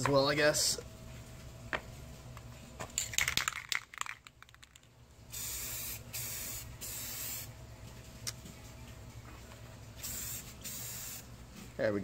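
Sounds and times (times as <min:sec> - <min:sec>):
aerosol spray hissing: 0:10.0 - 0:11.2.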